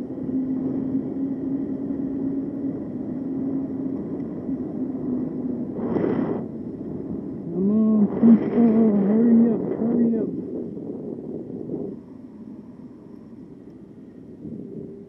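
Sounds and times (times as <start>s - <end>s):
electric motor whine: 0.0s - 9.2s
wind and road noise: 0.0s - 15.0s.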